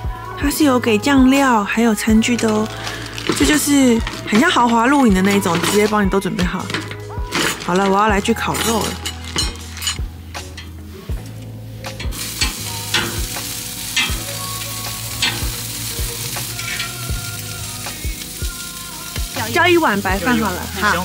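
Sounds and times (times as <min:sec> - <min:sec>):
meat skewers sizzling on a grill: 0:00.0 - 0:21.0
metal tongs clicking: 0:03.2 - 0:10.8, 0:12.0 - 0:13.3, 0:13.9 - 0:14.4, 0:15.2 - 0:15.5.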